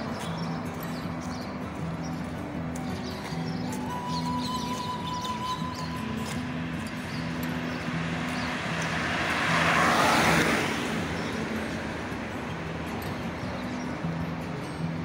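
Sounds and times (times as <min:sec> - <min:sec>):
car passing by: 0:06.2 - 0:13.2.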